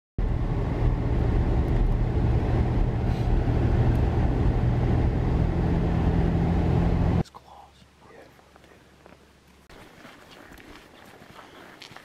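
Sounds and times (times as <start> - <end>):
vehicle engine drone: 0.2 - 7.2
road rumble: 0.2 - 12.0.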